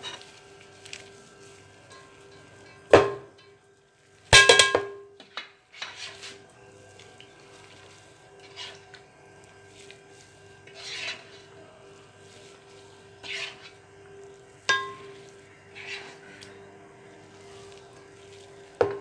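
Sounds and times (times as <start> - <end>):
faint steady hum: 0.0 - 19.0
ladle scraping steel pot: 5.7 - 6.4, 8.4 - 9.0, 10.6 - 11.6, 13.1 - 13.8, 14.7 - 16.5.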